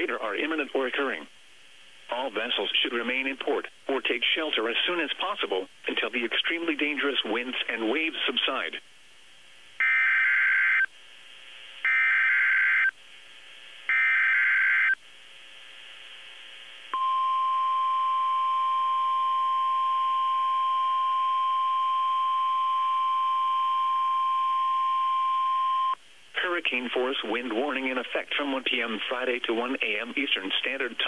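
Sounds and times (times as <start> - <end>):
faint radio hiss: 0.0 - 31.0
steady warning alarm tone: 9.8 - 10.9, 11.8 - 12.9, 13.9 - 15.0.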